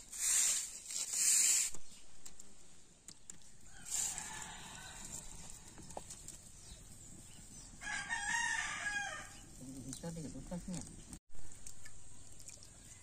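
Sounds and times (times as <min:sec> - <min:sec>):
rooster crowing: 0:03.7 - 0:05.9, 0:07.8 - 0:09.4.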